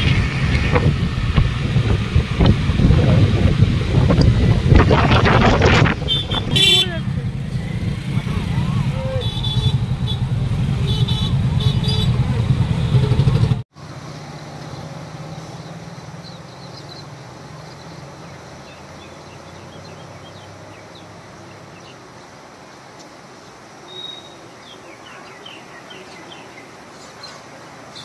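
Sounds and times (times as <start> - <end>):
flooded river rushing: 0.0 - 28.0
road traffic noise: 0.0 - 28.0
faint bird chirps: 23.9 - 28.0.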